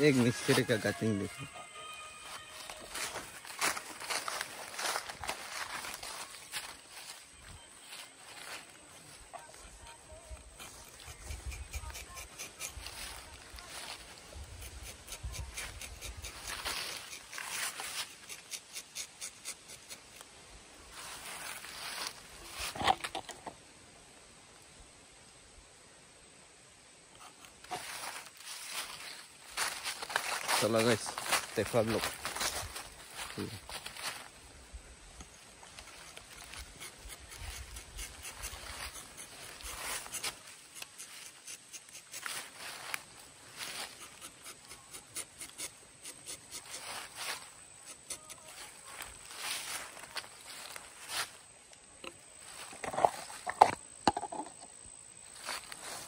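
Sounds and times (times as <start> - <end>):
knife scraping tree bark: 10.6 - 20.3, 35.9 - 48.8.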